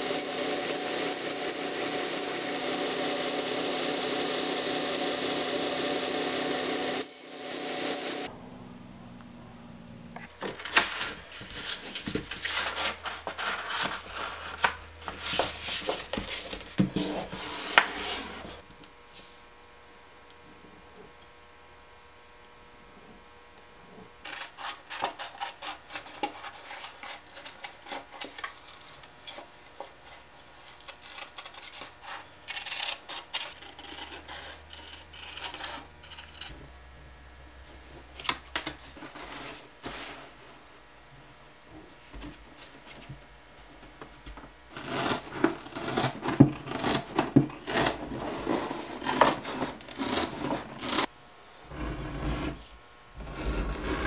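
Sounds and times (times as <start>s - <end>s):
snips cutting cardboard: 44.8s - 51.1s.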